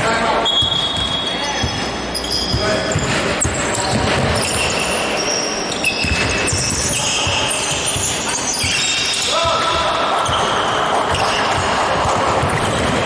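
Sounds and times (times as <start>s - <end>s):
echoing hall noise: 0.0s - 13.0s
sneakers squeaking: 0.0s - 13.0s
basketball bouncing on hardwood: 6.0s - 8.8s, 11.1s - 13.0s.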